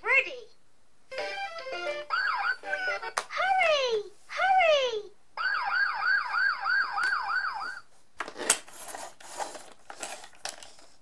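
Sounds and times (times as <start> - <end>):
electronic toy siren: 2.0 - 3.0, 5.4 - 7.8
plastic clicks and rattles: 9.5 - 11.0.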